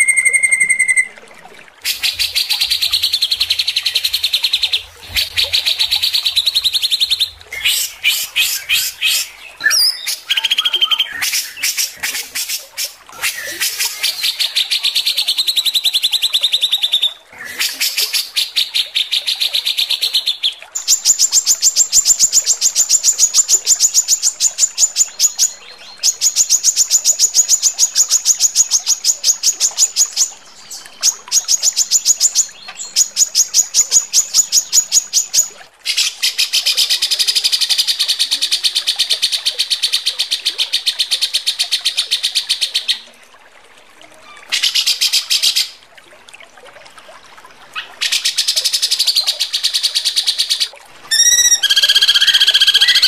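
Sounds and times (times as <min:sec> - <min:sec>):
songbird rattling trill: 0:00.0 - 0:01.1, 0:51.1 - 0:53.0
sharp falling bird notes: 0:00.0 - 0:01.2, 0:51.1 - 0:53.0.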